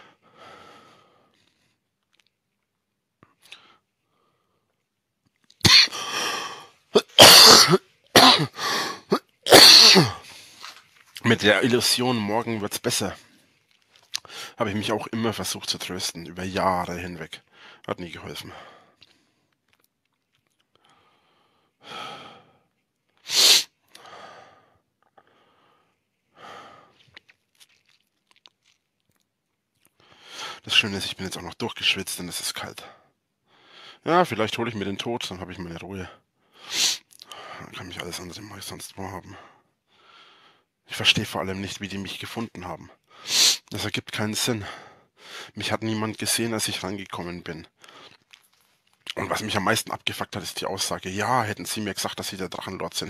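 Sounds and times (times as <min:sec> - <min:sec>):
man breathing heavily: 0:00.0 - 0:01.6, 0:05.8 - 0:06.8, 0:08.5 - 0:09.2, 0:20.8 - 0:22.6, 0:23.3 - 0:27.0
man coughing hard: 0:05.6 - 0:06.4, 0:07.0 - 0:10.2.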